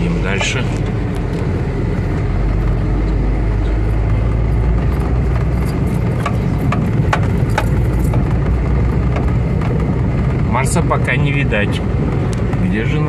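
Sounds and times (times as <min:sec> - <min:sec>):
car engine rumbling: 0:00.0 - 0:13.0
sharp knocks: 0:06.0 - 0:09.8.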